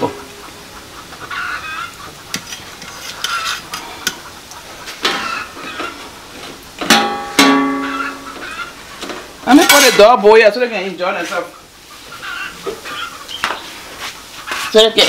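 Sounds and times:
metal spoon stirring in pot: 2.3 - 5.3.

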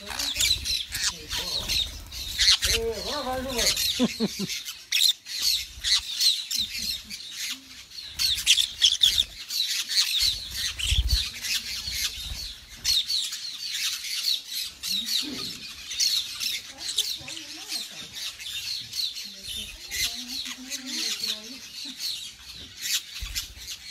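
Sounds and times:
parakeets chattering and squawking: 0.0 - 23.9.

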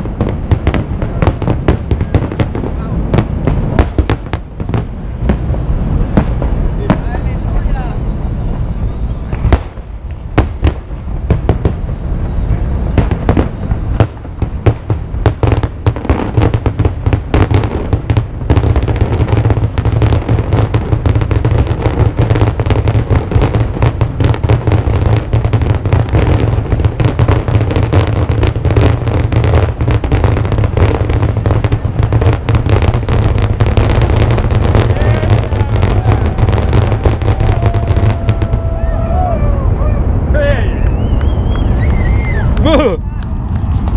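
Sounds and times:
low rumble: 0.0 - 43.9.

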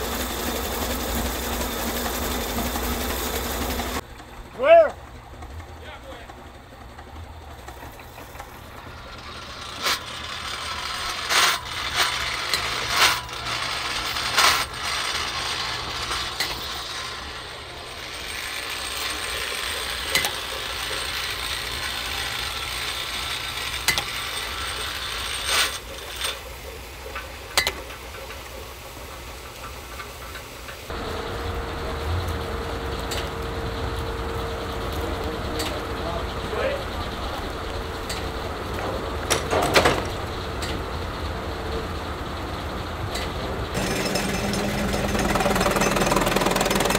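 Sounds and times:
machine hum: 0.0 - 29.5, 30.9 - 46.9
metal mechanism clanking: 43.1 - 46.9.

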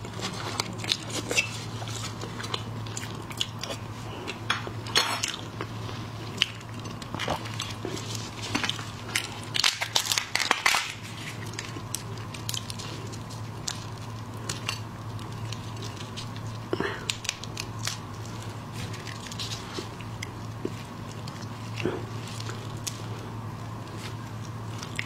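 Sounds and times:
steady low hum: 0.0 - 25.0
prawn shell crackling and clicking: 6.4 - 25.0.

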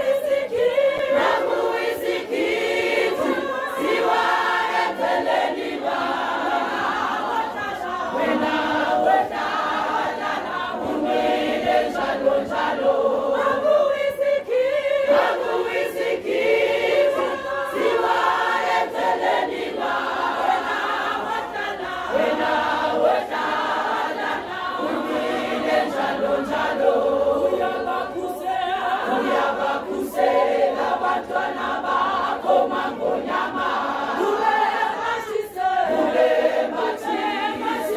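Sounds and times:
women's choir singing: 0.0 - 37.9.

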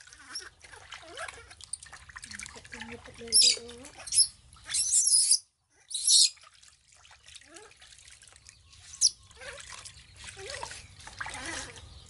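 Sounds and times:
water splashing in a plastic basin: 0.0 - 4.8, 6.3 - 12.0
water trickling and dripping: 0.0 - 4.8, 6.0 - 12.0
baby monkey squeaking: 3.3 - 6.4.

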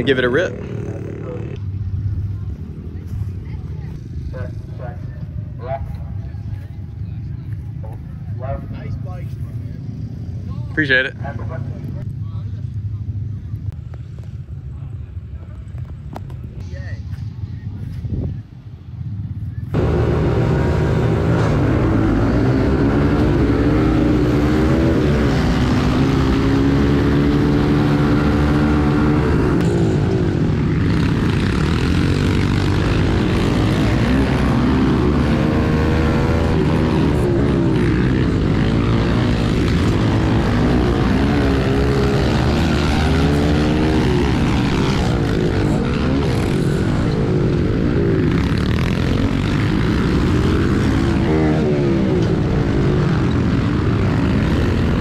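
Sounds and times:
pit bike engine revving: 0.0 - 1.6, 19.8 - 55.0
other pit bikes running: 0.0 - 55.0.

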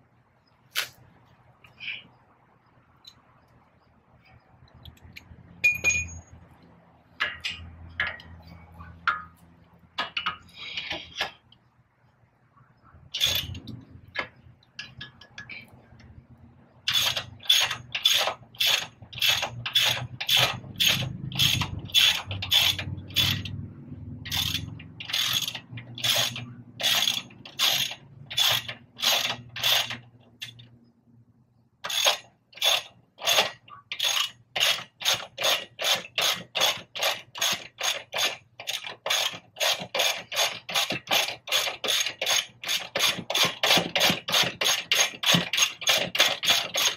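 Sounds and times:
ratchet wrench clicking: 13.1 - 15.5, 16.9 - 23.6, 24.2 - 30.7, 31.8 - 46.9.

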